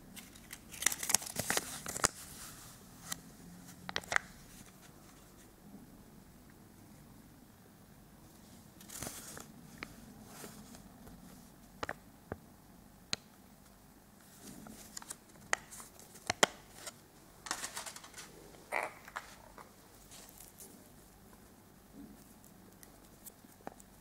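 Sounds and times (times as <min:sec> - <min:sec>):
paper rustling: 0:00.2 - 0:05.5, 0:08.8 - 0:11.4, 0:14.2 - 0:18.5, 0:19.1 - 0:20.8.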